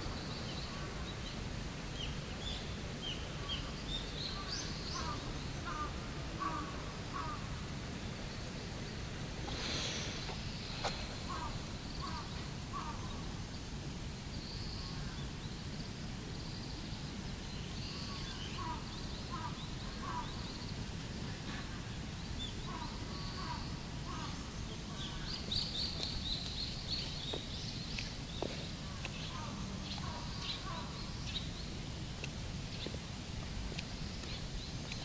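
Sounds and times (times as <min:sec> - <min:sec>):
birds chirping and trilling: 0:00.0 - 0:07.5, 0:09.5 - 0:13.6, 0:16.6 - 0:20.9, 0:21.6 - 0:31.8.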